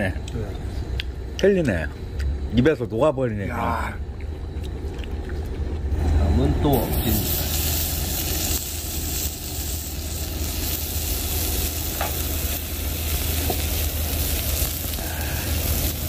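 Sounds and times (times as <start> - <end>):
meat sizzling on griddle: 6.8 - 16.0.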